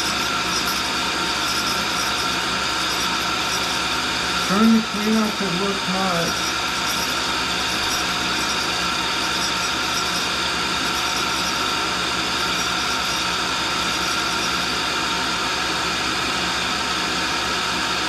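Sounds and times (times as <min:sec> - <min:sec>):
motors humming: 0:00.0 - 0:13.2
grinding wheel hiss: 0:00.0 - 0:14.8.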